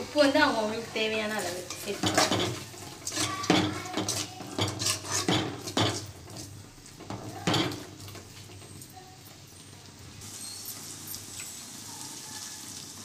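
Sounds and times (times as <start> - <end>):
spoon scraping and knocking a pot: 1.5 - 8.7.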